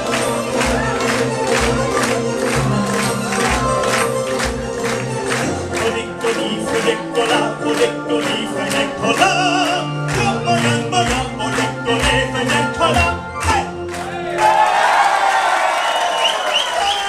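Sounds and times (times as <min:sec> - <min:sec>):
man singing into microphone: 0:05.6 - 0:13.8.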